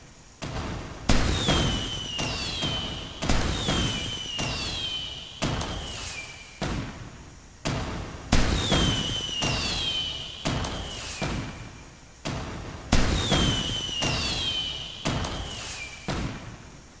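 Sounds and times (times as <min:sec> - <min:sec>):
firework bangs: 0:00.3 - 0:16.9
falling firework whistle: 0:00.4 - 0:07.1, 0:07.7 - 0:16.6.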